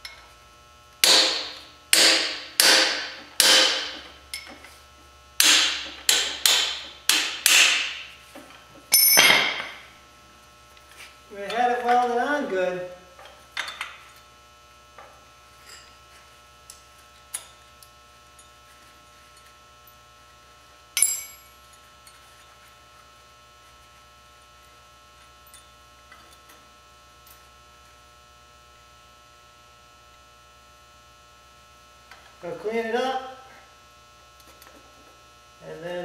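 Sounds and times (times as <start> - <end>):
electrical hum: 0.0 - 36.0
sharp metal clank: 1.0 - 4.5, 5.4 - 8.0, 8.9 - 9.8
hand tools clinking on metal: 21.0 - 21.4.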